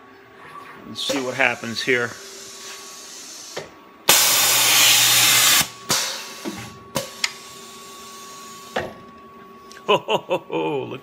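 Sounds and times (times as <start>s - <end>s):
air hiss: 1.1s - 6.4s
compressed air blast: 1.1s - 6.4s.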